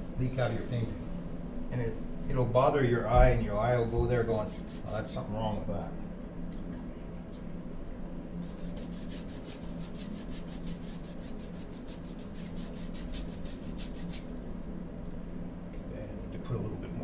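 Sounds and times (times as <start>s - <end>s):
paintbrush scrubbing on canvas: 3.8s - 5.2s, 8.4s - 14.3s.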